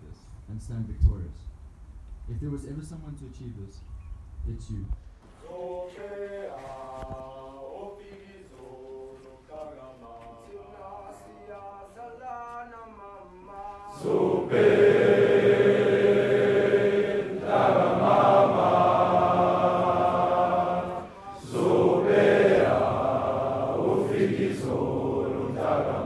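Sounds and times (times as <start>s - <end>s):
crowd of boys chanting: 13.8s - 26.0s.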